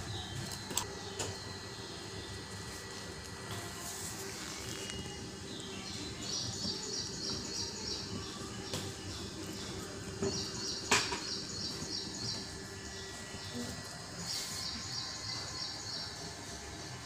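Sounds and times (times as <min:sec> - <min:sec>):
outdoor background: 0:00.0 - 0:17.0
bird chirping: 0:04.9 - 0:16.6.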